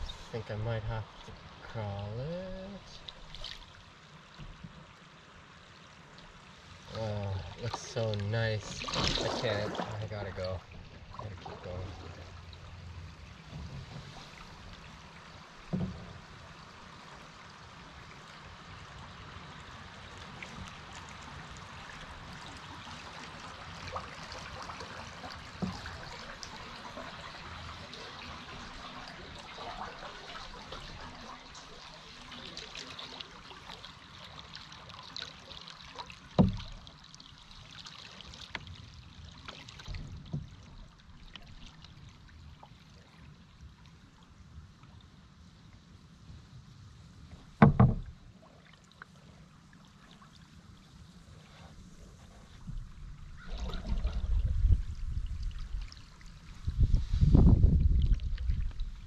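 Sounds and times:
canoe knocks: 15.6 - 16.4, 25.5 - 26.1, 36.4 - 36.8, 47.4 - 48.3.

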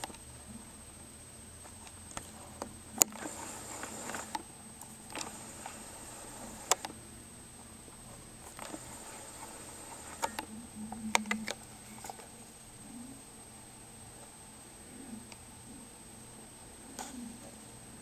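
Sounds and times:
sharp clicks: 0.0 - 0.3, 1.8 - 7.0, 8.4 - 12.2
faint high whine: 0.0 - 18.0.

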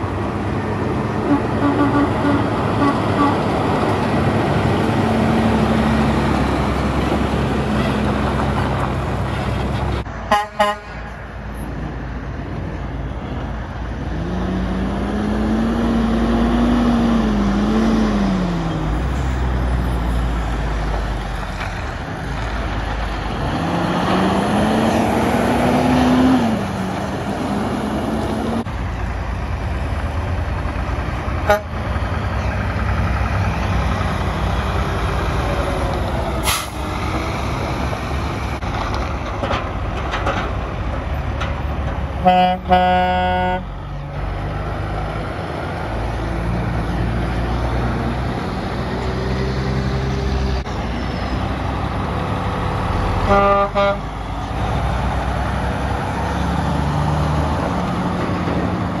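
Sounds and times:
diesel trucks accelerating: 0.0 - 59.0
truck horn toots: 1.2 - 3.5, 10.3 - 11.0, 31.4 - 31.8, 42.2 - 43.8, 53.2 - 54.1.

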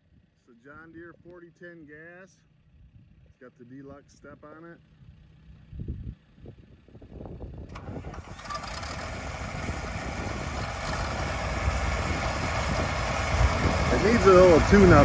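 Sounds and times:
tractor engine running: 6.3 - 15.0
tractor engine cranking: 7.7 - 15.0.

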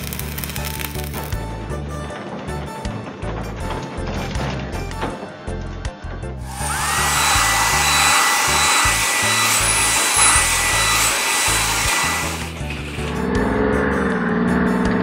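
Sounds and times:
background music with bass: 0.0 - 15.0
blower-like hiss: 6.4 - 12.8
rising machine whine: 6.4 - 14.5.

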